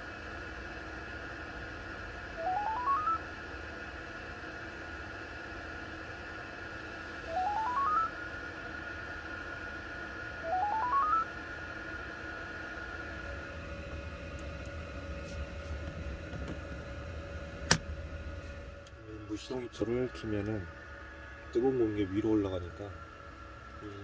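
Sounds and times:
steady low hum: 0.0s - 24.0s
rising electronic beeps: 2.4s - 3.2s, 7.3s - 8.1s, 10.4s - 11.3s.

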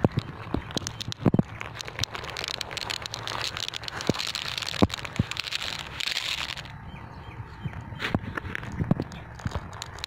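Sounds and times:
glass marbles clicking together: 0.0s - 6.7s, 9.0s - 10.0s.

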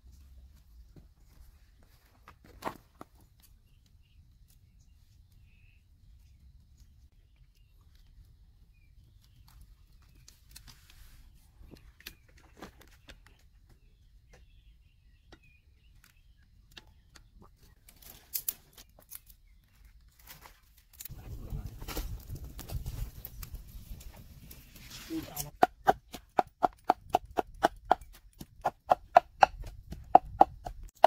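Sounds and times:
hands handling food and twigs: 15.8s - 30.6s.

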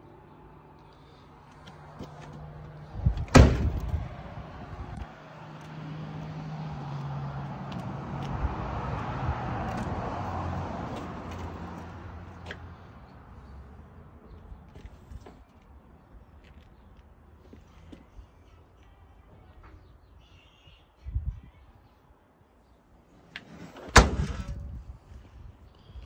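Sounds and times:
car door slamming shut: 3.2s - 4.0s, 23.9s - 24.6s.

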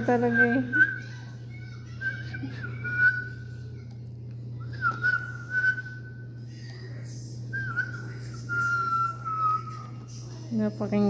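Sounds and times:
person whistling long notes: 4.7s - 6.2s.

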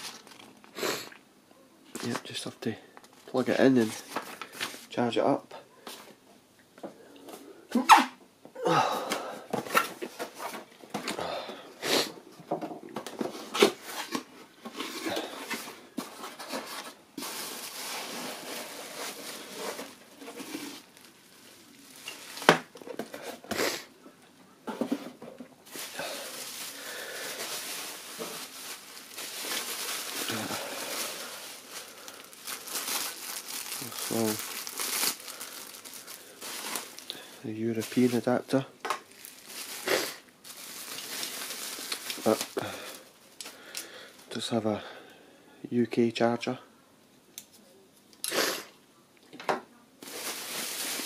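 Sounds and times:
plastic wrap crinkling: 0.0s - 0.8s, 1.9s - 5.1s, 13.0s - 23.6s, 25.6s - 44.4s, 50.0s - 51.0s.

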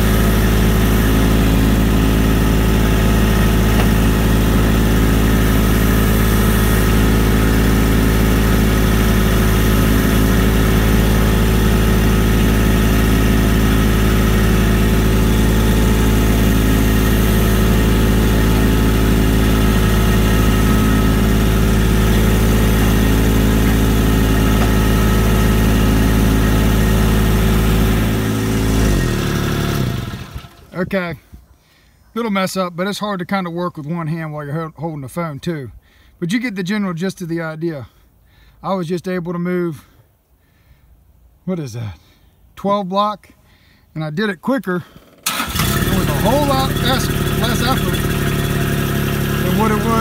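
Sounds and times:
loader engine running: 0.0s - 30.7s, 45.1s - 50.0s.

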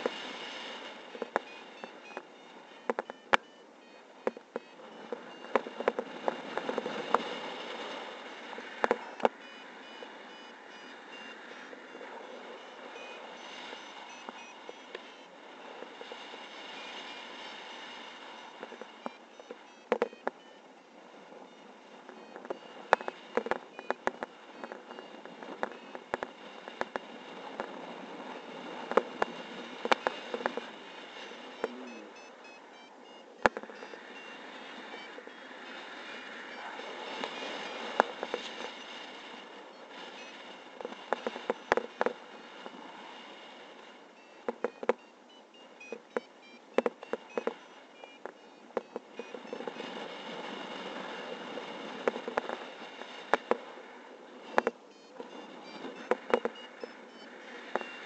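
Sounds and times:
faint short high beeps: 0.0s - 27.6s, 28.2s - 51.3s, 54.5s - 58.0s
wind rushing over microphone: 4.4s - 45.0s, 45.7s - 58.0s
sharp clicks and knocks: 44.4s - 45.0s.

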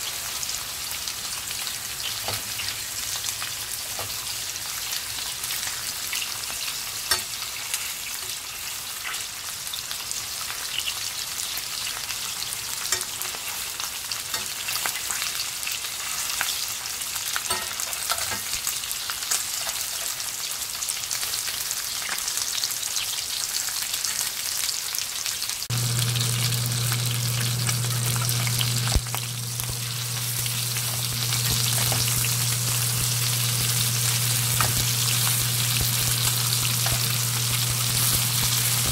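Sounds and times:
meat sizzling in a pan: 0.0s - 38.9s
low steady hum: 25.7s - 38.9s.

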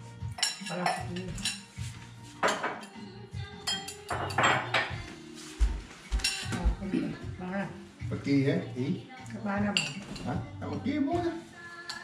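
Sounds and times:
cutlery clinking on plates: 0.3s - 3.0s, 3.6s - 5.0s, 6.1s - 7.0s, 11.8s - 12.0s.

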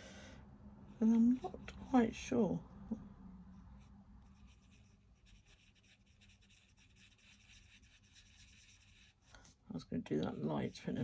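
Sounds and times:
pen scratching on card: 4.3s - 9.2s.

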